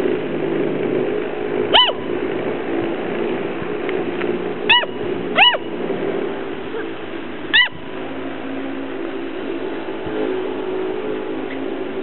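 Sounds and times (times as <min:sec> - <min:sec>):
steady low hum: 0:00.0 - 0:12.0
puppies yipping: 0:01.7 - 0:02.0, 0:04.7 - 0:05.7, 0:07.5 - 0:07.8.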